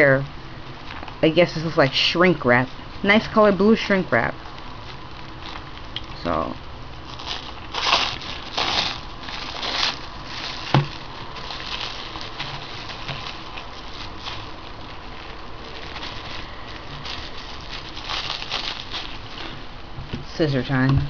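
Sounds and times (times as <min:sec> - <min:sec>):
plastic shrink wrap crinkling: 0:00.8 - 0:19.8.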